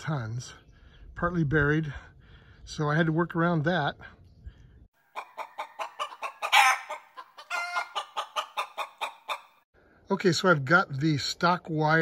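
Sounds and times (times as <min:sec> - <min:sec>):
chickens clucking: 0:05.0 - 0:09.6.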